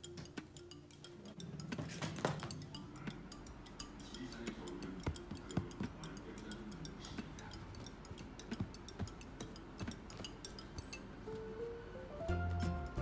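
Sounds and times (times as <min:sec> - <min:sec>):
light ticking percussion: 0:00.0 - 0:11.5
quiet background music: 0:00.0 - 0:13.0.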